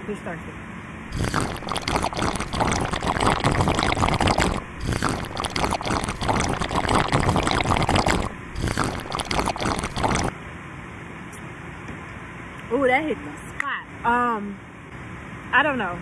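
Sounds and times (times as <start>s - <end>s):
drink slurped through a straw: 1.1s - 10.3s.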